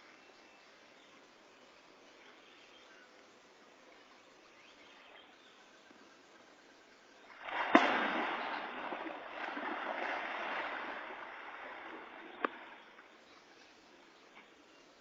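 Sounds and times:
heavy splash of animal in water: 0:07.4 - 0:12.7
churning sloshing water: 0:07.4 - 0:13.2.

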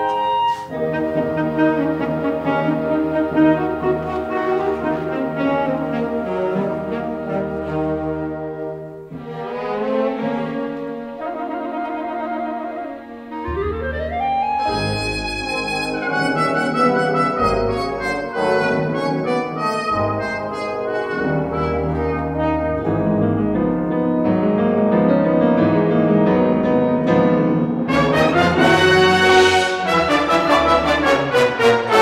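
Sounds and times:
instrumental background music: 0:08.7 - 0:23.8.

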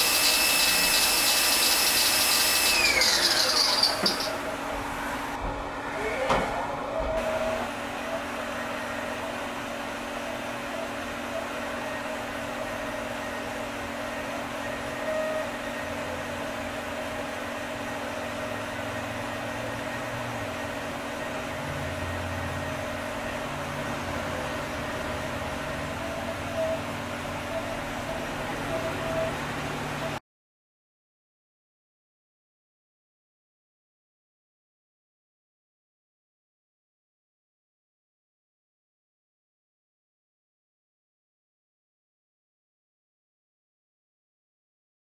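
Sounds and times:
end mill cutting plastic: 0:00.0 - 0:04.7
milling machine hum: 0:00.0 - 0:30.2.

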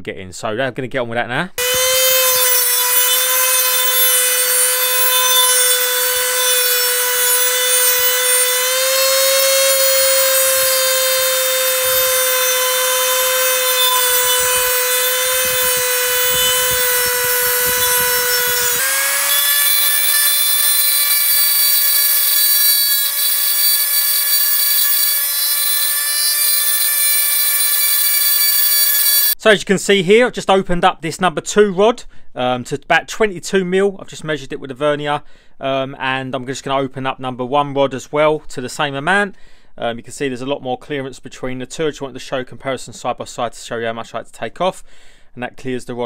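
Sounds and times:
rotary tool grinding whine: 0:01.6 - 0:29.4.

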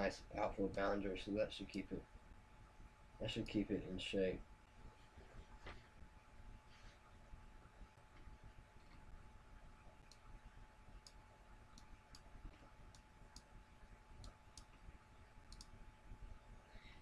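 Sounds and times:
computer mouse clicks: 0:11.0 - 0:13.5, 0:15.5 - 0:15.8.

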